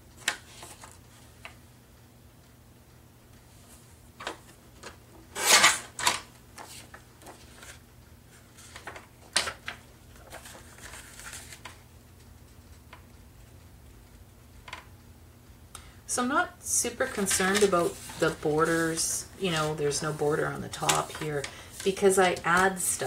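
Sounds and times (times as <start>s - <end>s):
paper rustling and sliding: 0.2s - 1.2s, 5.3s - 11.8s, 17.1s - 23.0s.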